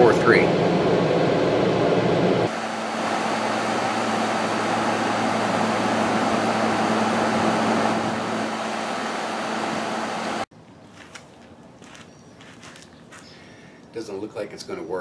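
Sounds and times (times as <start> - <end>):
air conditioner fan rushing: 0.0 - 10.5
low compressor hum: 0.0 - 10.5.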